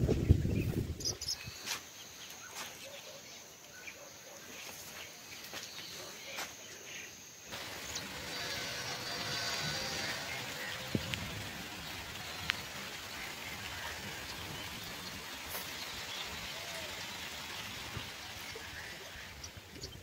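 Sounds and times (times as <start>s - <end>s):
soft even hiss: 4.6s - 20.0s
insect buzzing: 7.5s - 14.7s.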